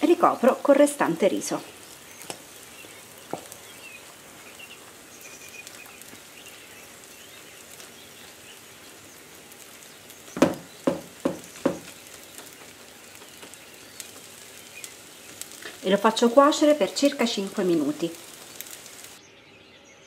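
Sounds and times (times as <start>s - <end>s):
faint frying sizzle: 0.0s - 19.3s
spatula tapping food: 3.3s - 3.6s, 10.4s - 14.4s.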